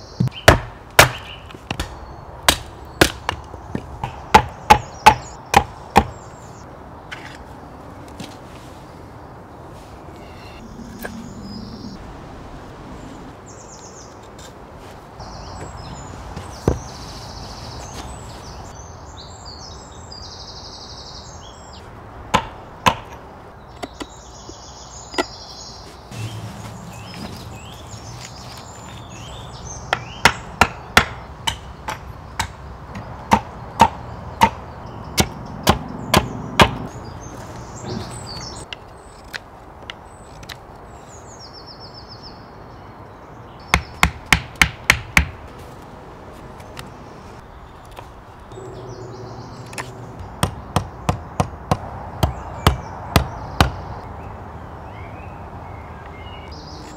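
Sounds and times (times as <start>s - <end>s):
hatchet knocking wooden stake: 0.2s - 3.4s
axe chopping wood: 0.2s - 6.1s, 35.2s - 36.9s, 43.8s - 45.4s.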